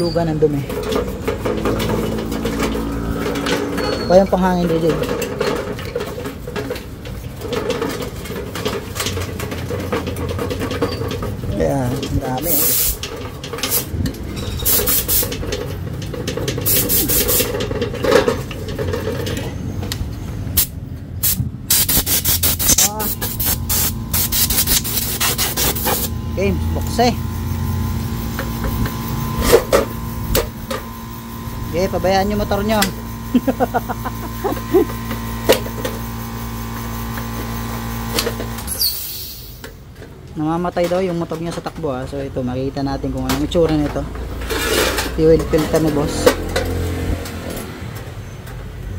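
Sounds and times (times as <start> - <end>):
motor humming: 0.4 - 20.0, 22.2 - 39.3
scrubbing dirt off metal: 21.7 - 27.1.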